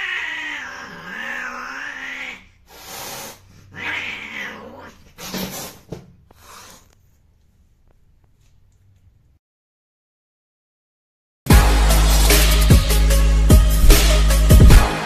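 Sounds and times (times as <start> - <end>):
cat yowling: 0.0 - 2.6, 3.7 - 5.0
cat hissing: 0.0 - 7.0.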